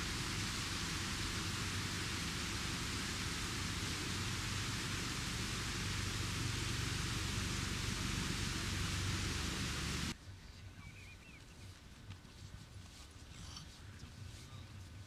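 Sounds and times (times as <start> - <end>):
loud rushing hiss with rumble: 0.0 - 10.2.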